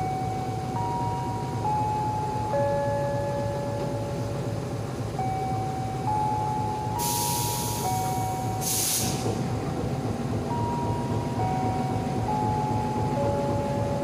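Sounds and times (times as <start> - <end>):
standing train low rumble: 0.0 - 14.0
train air hissing: 7.0 - 9.5.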